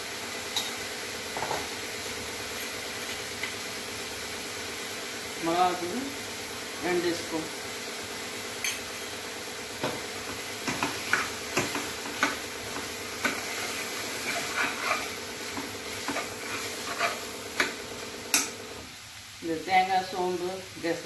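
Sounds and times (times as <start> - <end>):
steady hiss: 0.0 - 21.0
spoon scraping a metal pot: 13.2 - 15.2, 16.0 - 17.7.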